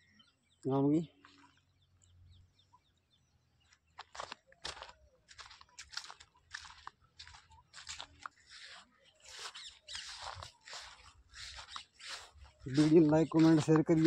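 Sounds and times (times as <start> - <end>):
crunching and rustling vegetation: 3.6 - 14.0.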